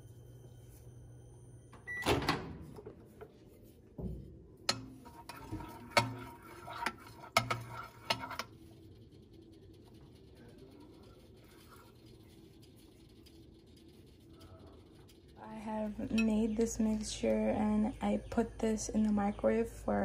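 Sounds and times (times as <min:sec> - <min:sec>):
microwave beep: 0:00.0 - 0:02.7
microwave clunk: 0:01.8 - 0:02.9.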